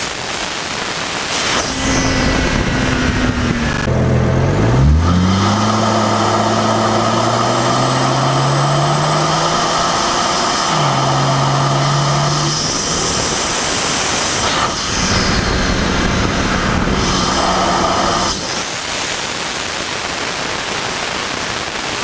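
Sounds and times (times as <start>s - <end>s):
engine intake rush and hiss: 0.3s - 22.0s
engine hum: 1.4s - 18.7s.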